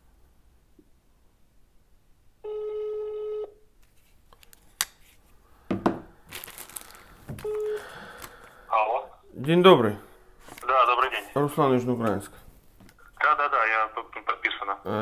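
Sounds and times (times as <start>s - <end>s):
telephone ringing tone beeps: 2.4s - 3.6s, 7.4s - 7.8s
rustling handling noises: 3.8s - 5.4s, 6.2s - 8.6s, 10.4s - 13.2s.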